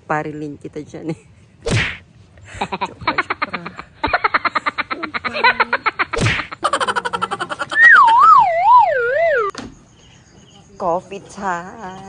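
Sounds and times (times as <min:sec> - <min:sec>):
chattering pitched pulses: 0:05.0 - 0:09.5
wobbling tone sliding downward: 0:07.8 - 0:09.5.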